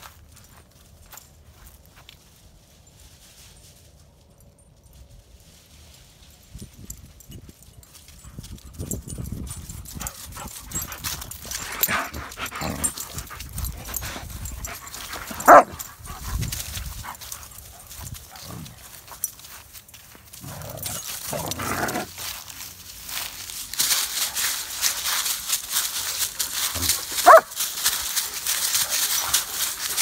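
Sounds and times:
scuffling in dry grass and leaves: 0:00.0 - 0:30.0
dogs vocalizing while play-fighting: 0:09.8 - 0:18.9
dog barking: 0:15.4 - 0:15.8, 0:27.2 - 0:27.5.

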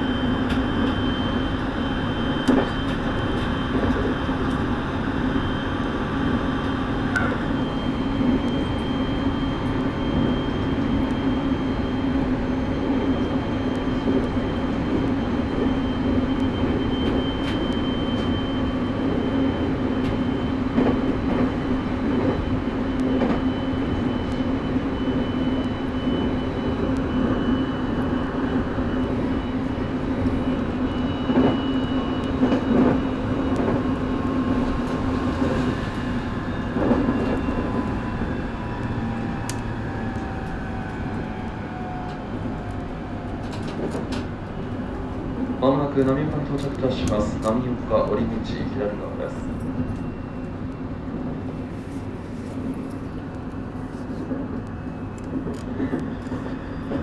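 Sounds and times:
train motor whine: 0:00.0 - 0:57.0
train wheels rumbling on rail: 0:00.0 - 0:57.0
rail joint clicks: 0:02.4 - 0:04.6, 0:20.0 - 0:23.5, 0:31.0 - 0:34.0, 0:34.6 - 0:48.3, 0:54.2 - 0:57.0.

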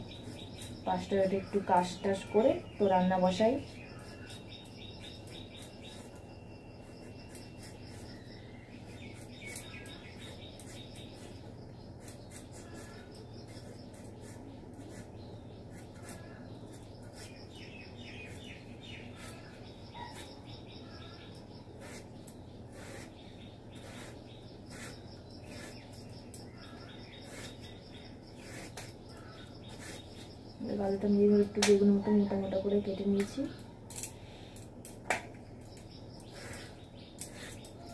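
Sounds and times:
small birds chirping: 0:00.0 - 0:37.9.

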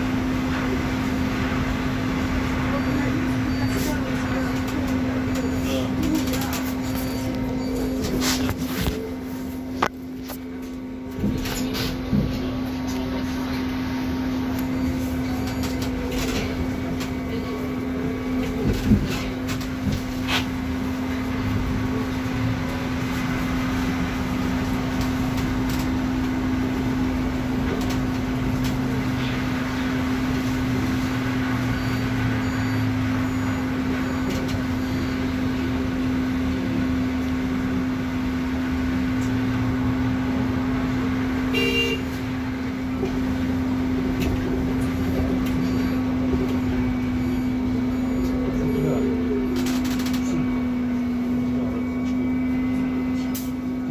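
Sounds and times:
trolleybus electrical hum: 0:00.0 - 0:53.9
short beep: 0:45.2 - 0:50.8.

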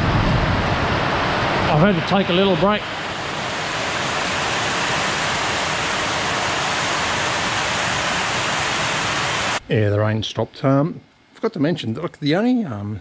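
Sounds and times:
heavy rain on metal roof: 0:00.0 - 0:09.6.

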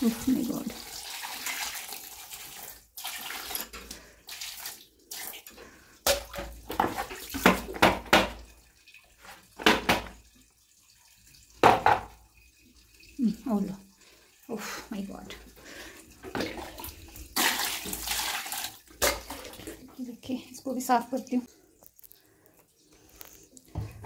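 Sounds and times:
water pouring on plastic: 0:00.0 - 0:24.0
wet splashing and scrubbing: 0:15.6 - 0:19.9.

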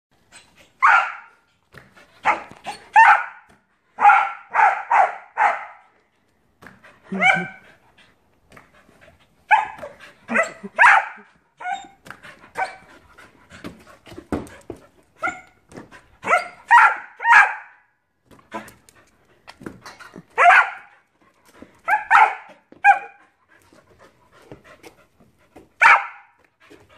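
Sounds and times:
dog barking: 0:00.8 - 0:01.3, 0:02.2 - 0:05.9, 0:07.1 - 0:07.6, 0:09.5 - 0:11.9, 0:16.2 - 0:17.9, 0:20.4 - 0:20.9, 0:21.9 - 0:23.2, 0:25.8 - 0:26.4.

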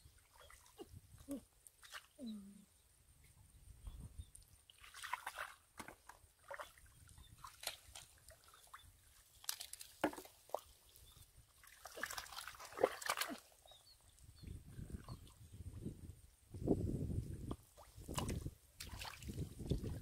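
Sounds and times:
mud squelching and sloshing: 0:04.7 - 0:13.8, 0:17.7 - 0:20.0.

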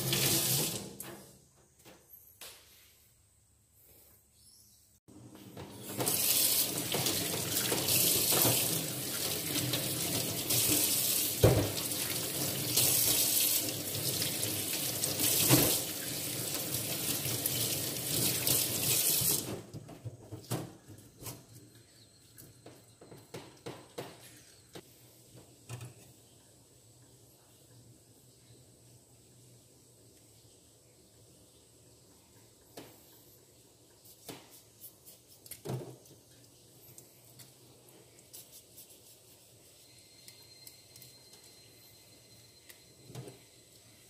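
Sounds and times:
tap water splashing into sink: 0:10.5 - 0:12.2.

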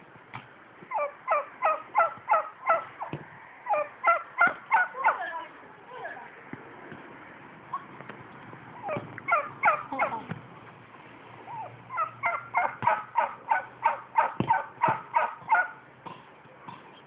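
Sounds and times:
turkey gobbling: 0:00.9 - 0:05.2, 0:08.8 - 0:10.2, 0:11.5 - 0:15.8.

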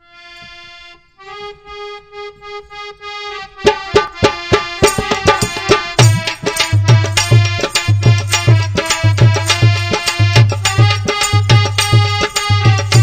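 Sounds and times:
reedy accordion-like melody: 0:00.0 - 0:13.0
steady drum beat: 0:03.7 - 0:13.0.

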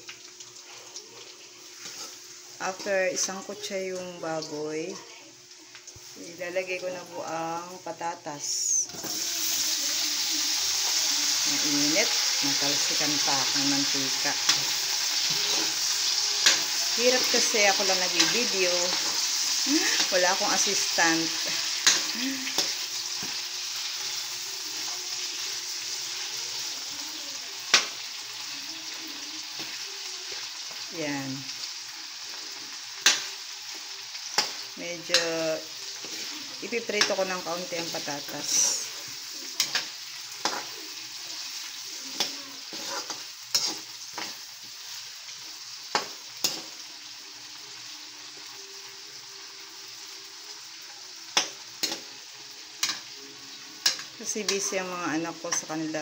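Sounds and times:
pork and potatoes sizzling in oil: 0:00.0 - 0:56.0
spatula scraping pan: 0:11.5 - 0:26.7, 0:32.2 - 0:46.8.

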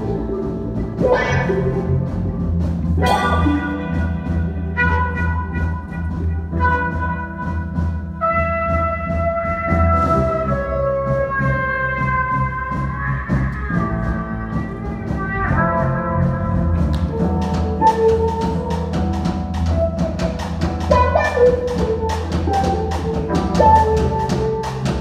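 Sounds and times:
drum kit with cymbal hits: 0:00.0 - 0:25.0
jazz big band playing: 0:00.0 - 0:25.0
horns holding chords: 0:03.0 - 0:07.0.

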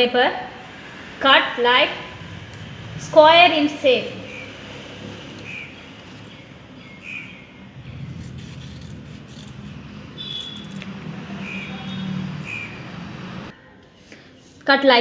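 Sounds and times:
bird chirping: 0:04.2 - 0:09.5, 0:11.4 - 0:12.8.

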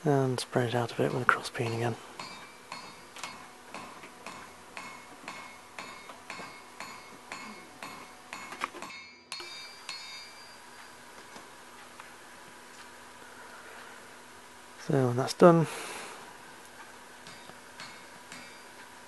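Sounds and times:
hammer striking steel on anvil: 0:01.1 - 0:10.6, 0:17.2 - 0:18.9.

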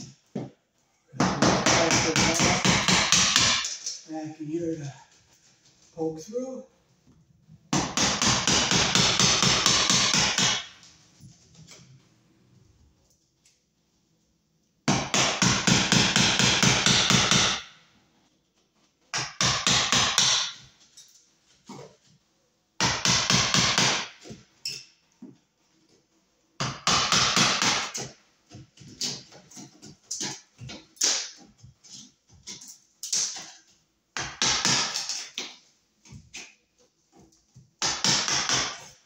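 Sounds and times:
hammer striking a wall: 0:01.2 - 0:03.7, 0:07.7 - 0:10.8, 0:14.8 - 0:17.7, 0:19.1 - 0:20.7, 0:22.8 - 0:24.4, 0:26.6 - 0:28.2, 0:32.5 - 0:35.6, 0:37.8 - 0:39.0.

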